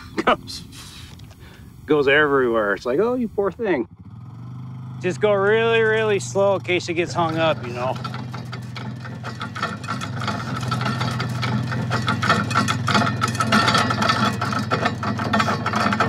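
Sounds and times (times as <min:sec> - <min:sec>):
engine running slowly: 0:02.9 - 0:16.0
metallic clicking and rattling of wire spool: 0:05.5 - 0:16.0.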